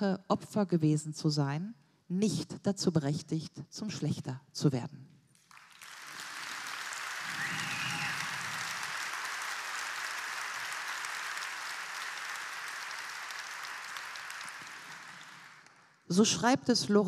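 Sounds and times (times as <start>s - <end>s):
large audience applauding: 5.4s - 16.0s.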